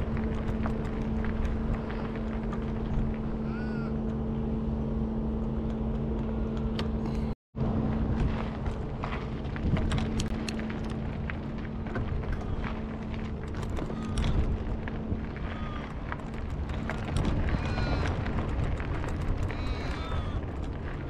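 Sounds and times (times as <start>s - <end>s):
steady low hum: 0.0s - 21.0s
crows cawing: 3.3s - 4.0s, 13.8s - 14.4s, 15.4s - 16.0s, 17.4s - 18.3s, 19.4s - 20.5s
footsteps on gravel: 7.8s - 21.0s.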